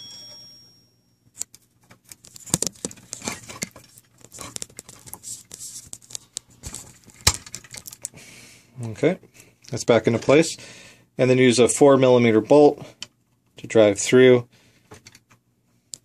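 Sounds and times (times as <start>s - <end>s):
plastic parts clicking and scraping: 1.4s - 8.2s, 14.9s - 15.4s.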